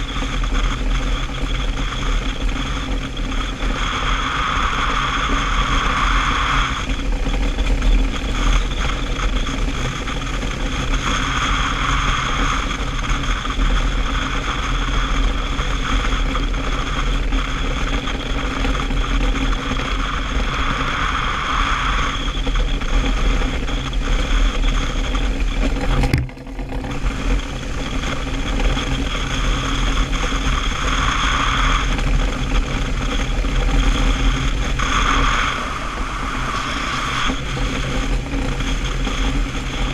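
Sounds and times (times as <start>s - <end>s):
wind rushing: 24.8s - 39.9s.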